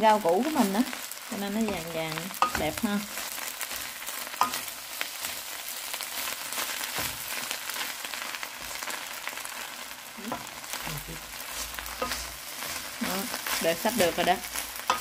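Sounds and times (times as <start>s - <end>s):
rice sizzling in pan: 0.0s - 15.0s
spatula scraping pan: 1.5s - 5.4s, 10.3s - 15.0s.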